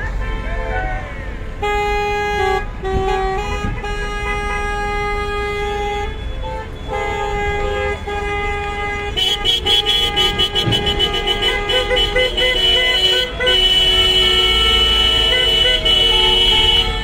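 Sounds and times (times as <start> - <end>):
car horns honking: 0.0 - 17.0.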